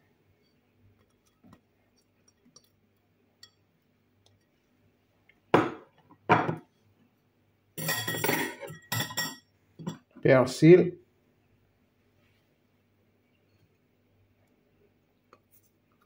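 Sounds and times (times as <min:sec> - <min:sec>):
glass clattering: 0:07.8 - 0:10.1
glassware and metal utensil clinking: 0:07.8 - 0:10.1.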